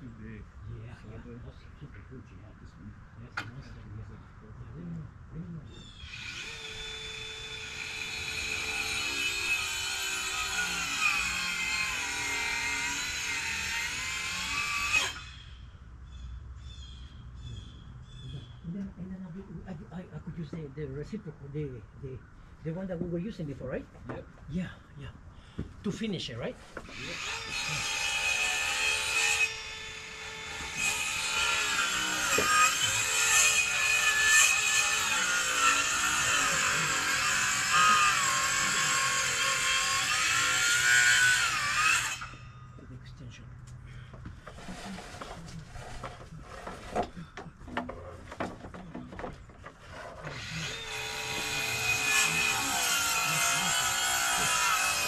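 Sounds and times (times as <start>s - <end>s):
reciprocating saw cutting wood: 5.8s - 15.6s, 26.6s - 42.5s, 44.4s - 55.0s.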